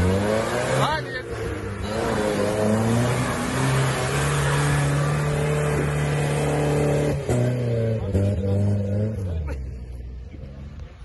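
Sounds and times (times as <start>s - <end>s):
engine revving under load: 0.0s - 9.8s.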